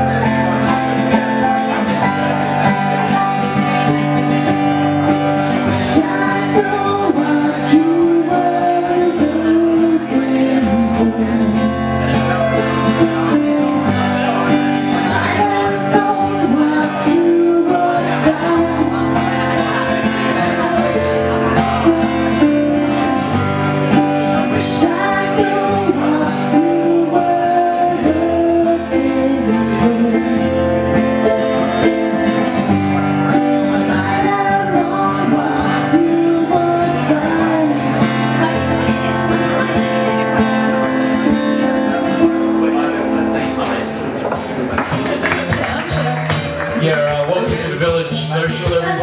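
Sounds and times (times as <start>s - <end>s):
strummed acoustic guitar: 0.0s - 49.0s
woman singing: 5.6s - 11.8s, 15.1s - 19.5s, 24.4s - 30.7s, 33.8s - 38.7s.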